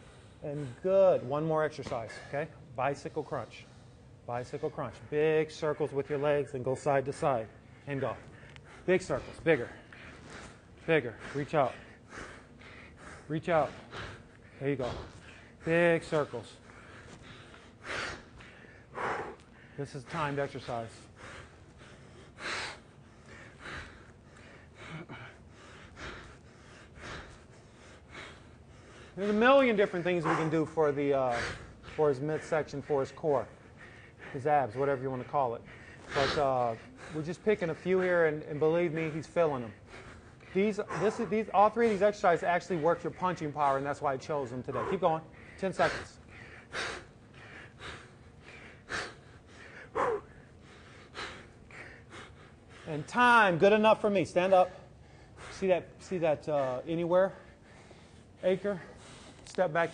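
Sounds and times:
man breathing hard: 0:00.0 - 0:01.3, 0:06.1 - 0:59.9.

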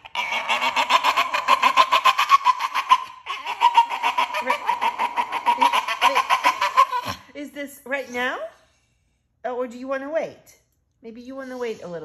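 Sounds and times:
dog yelping squeals: 0:00.0 - 0:07.3.

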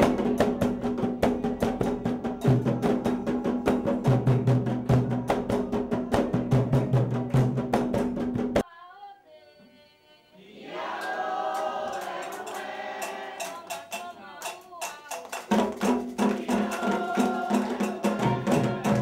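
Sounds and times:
women singing in a group: 0:00.0 - 0:04.3, 0:08.6 - 0:19.0
hand drum played fast: 0:00.0 - 0:08.6, 0:14.8 - 0:19.0.

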